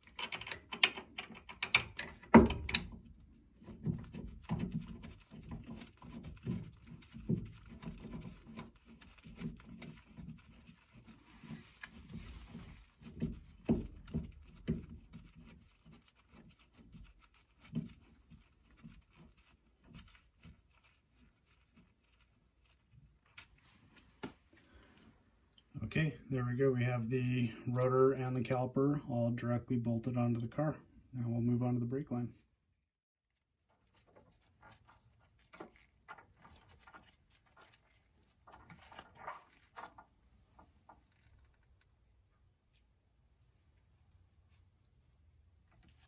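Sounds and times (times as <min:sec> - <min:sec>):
hand tools clicking and knocking: 0:00.0 - 0:03.1.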